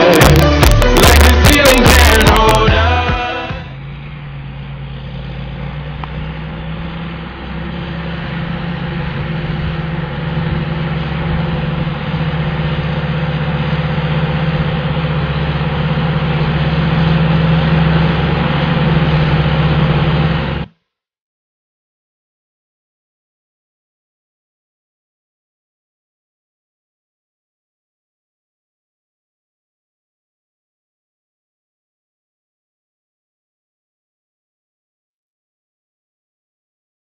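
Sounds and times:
tractor diesel engine under load: 0.0s - 20.8s.

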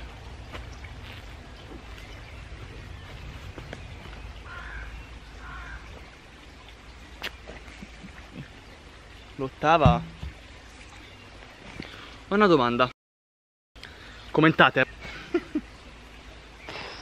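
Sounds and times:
faint bird calls: 3.0s - 6.0s.

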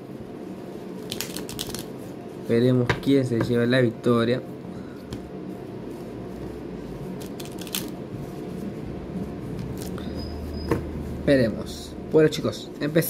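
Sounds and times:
playing cards clicking: 1.0s - 1.9s, 7.2s - 7.9s.

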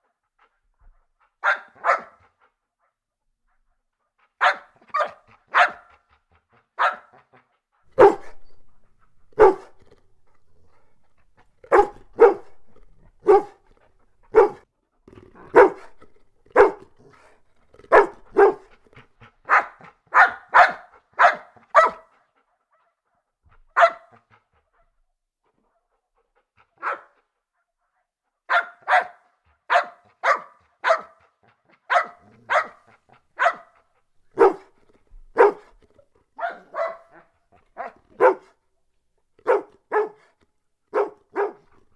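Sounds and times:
dogs barking: 1.4s - 2.2s, 4.4s - 5.9s, 7.9s - 14.6s, 15.5s - 18.8s, 19.5s - 22.0s, 28.5s - 31.2s, 31.9s - 35.7s, 36.4s - 38.5s, 39.4s - 40.3s, 40.9s - 41.8s.

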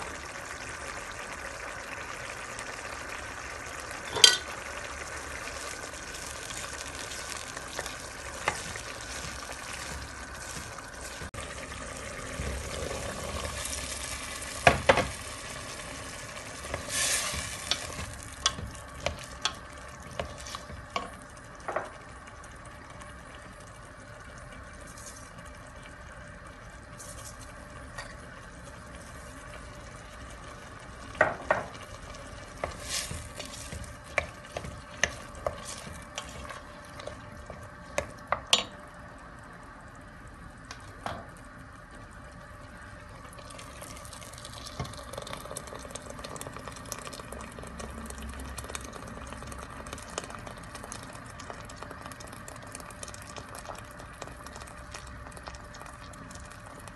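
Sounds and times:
low sizzle: 0.0s - 56.9s
spoon knocking against metal pot: 4.1s - 4.4s
wooden spoon stirring in pot: 6.2s - 11.4s, 15.2s - 21.2s, 31.6s - 38.8s.

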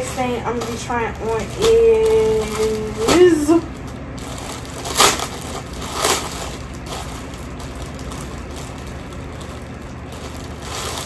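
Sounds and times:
rustling and crinkling: 0.0s - 11.0s
steady low hum: 0.0s - 11.0s.

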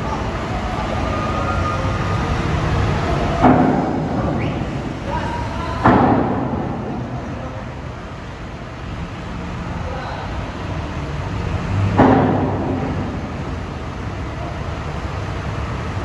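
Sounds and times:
low vehicle rumble: 0.0s - 16.0s
loud bangs: 2.0s - 7.4s, 11.8s - 13.7s.

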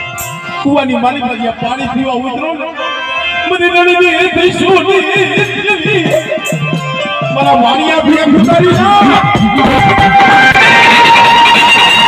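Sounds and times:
drum beating quickly: 4.5s - 12.0s.

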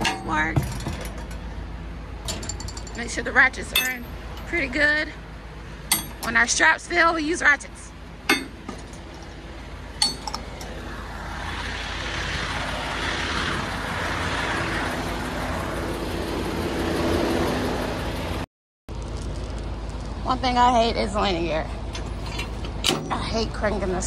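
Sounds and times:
vehicle running nearby: 0.0s - 24.0s
metallic clink: 2.2s - 4.6s, 5.9s - 6.3s, 10.0s - 10.4s.

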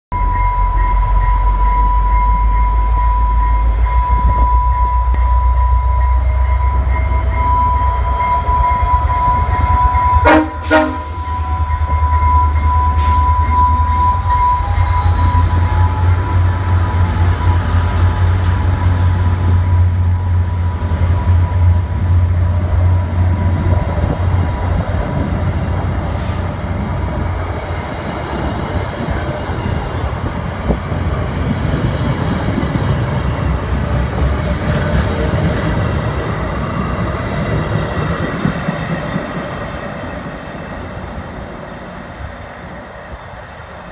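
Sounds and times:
steady high tone: 0.1s - 26.0s
diesel locomotive engine rumbling: 0.1s - 43.9s.

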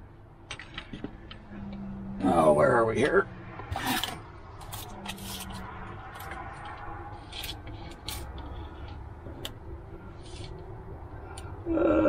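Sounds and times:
low steady rumble: 0.0s - 12.0s
tape measure scraping and clicking: 3.7s - 8.7s.

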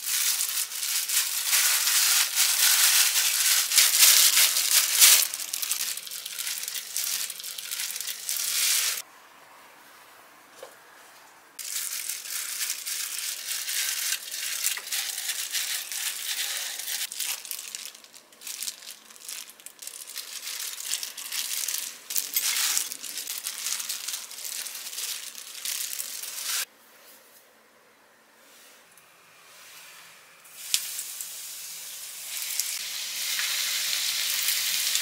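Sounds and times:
plastic glove crinkling: 0.0s - 9.0s, 11.6s - 26.7s
breadcrumbs crunching: 11.6s - 26.6s.

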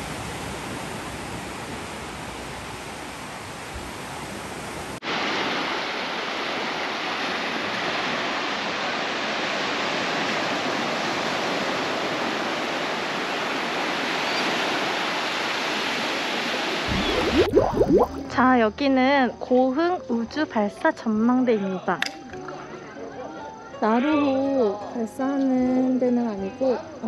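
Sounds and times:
waves breaking on sandy beach: 0.0s - 17.5s.

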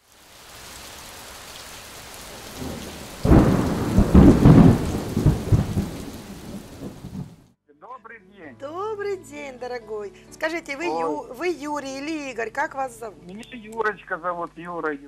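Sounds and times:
rain hissing: 0.0s - 7.4s
thunder rumbling: 2.3s - 7.4s.

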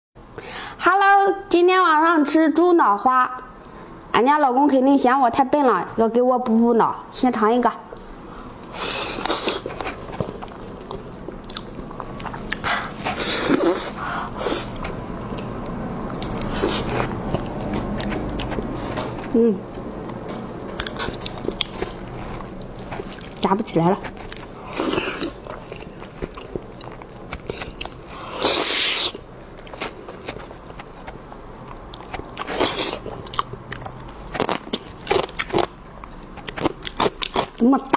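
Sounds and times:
wet chewing mouth sounds: 8.0s - 37.6s.

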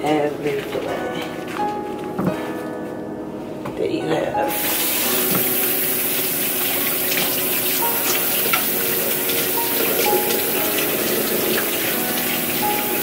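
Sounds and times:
faucet running into sink: 4.5s - 13.0s.

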